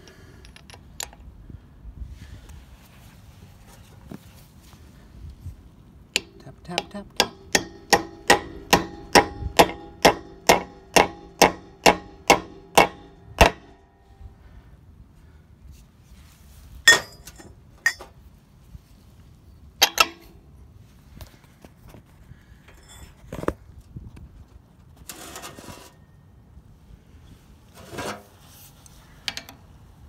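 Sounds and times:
hammer striking metal socket: 0:06.2 - 0:13.8, 0:16.9 - 0:18.1, 0:19.8 - 0:20.3.

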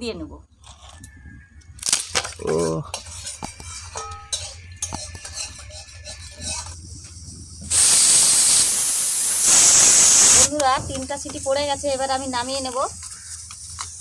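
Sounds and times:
pressure cooker whistle hissing: 0:07.7 - 0:10.5.

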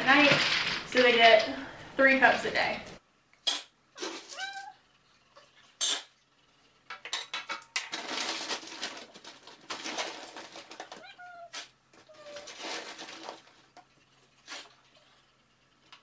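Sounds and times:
kibble rattling in metal bin: 0:00.1 - 0:01.4, 0:07.4 - 0:11.1, 0:12.1 - 0:13.7.

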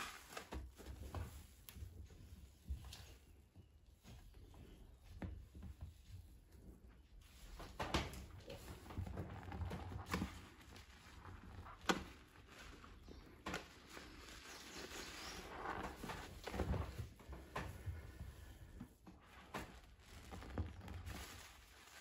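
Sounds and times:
squishing and crackling suds: 0:08.1 - 0:22.0.

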